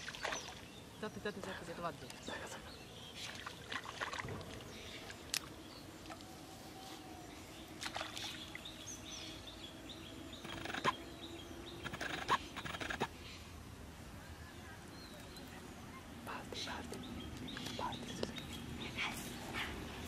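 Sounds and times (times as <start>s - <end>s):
water splashes: 0.0s - 0.8s, 3.2s - 6.2s, 7.7s - 8.8s
faint bird chirps: 5.7s - 13.5s.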